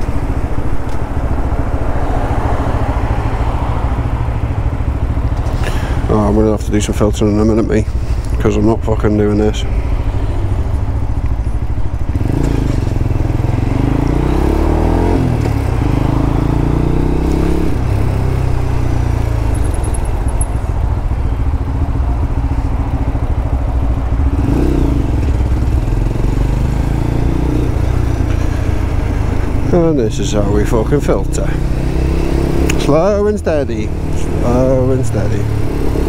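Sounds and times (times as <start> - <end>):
motorcycle engine revving: 9.2 - 36.0.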